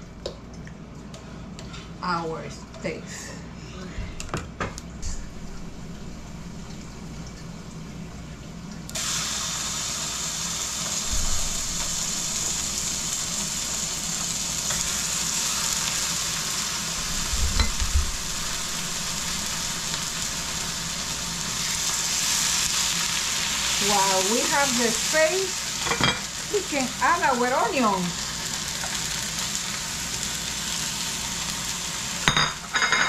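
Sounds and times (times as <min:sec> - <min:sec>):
meat sizzling in frying pan: 0:09.0 - 0:33.0.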